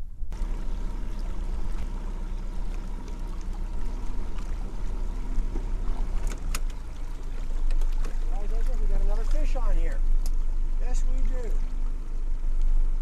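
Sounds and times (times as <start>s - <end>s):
outboard motor running: 0.3s - 13.0s
sharp clicks: 6.1s - 6.8s.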